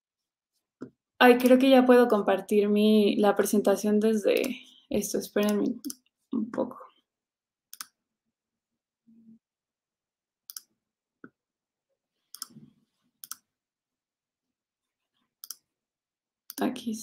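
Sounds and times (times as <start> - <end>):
computer clicks: 13.2 - 13.4, 15.4 - 15.6.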